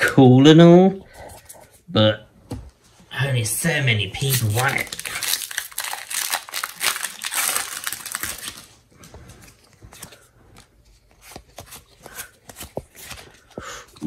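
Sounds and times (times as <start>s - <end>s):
foil wrapper crinkling: 4.2s - 10.2s
trading cards clicking and rustling: 9.3s - 14.0s.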